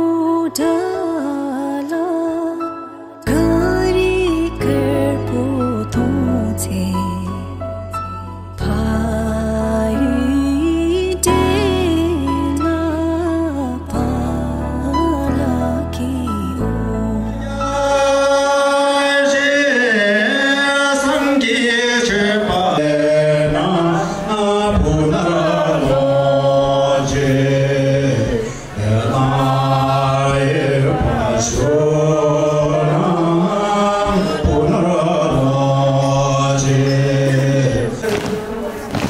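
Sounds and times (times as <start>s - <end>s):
men singing a chant-like song: 17.4s - 38.5s.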